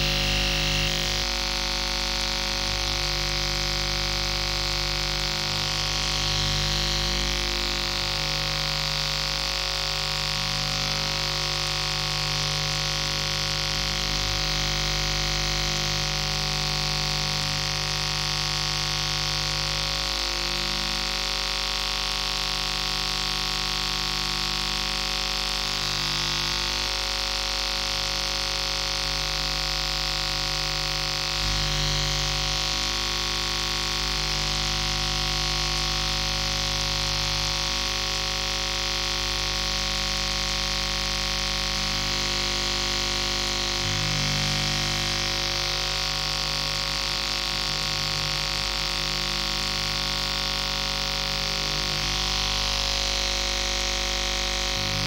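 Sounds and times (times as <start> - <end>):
hiss and static: 0.0 - 1.2
droning hum tones: 2.6 - 9.0, 41.7 - 45.8, 54.6 - 55.0.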